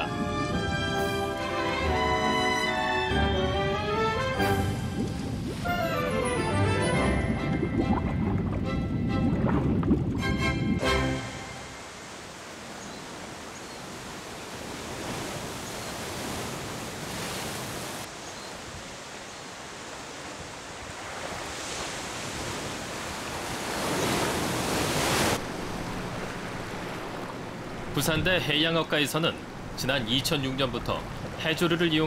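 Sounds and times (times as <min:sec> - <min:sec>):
sea waves washing in: 0:00.0 - 0:32.0.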